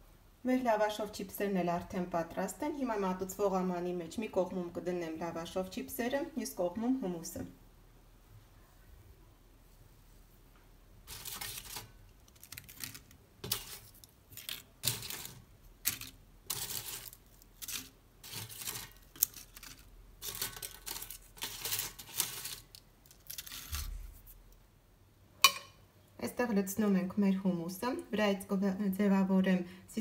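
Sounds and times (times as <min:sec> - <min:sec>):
dry chips crackling and rustling: 0:11.0 - 0:24.4.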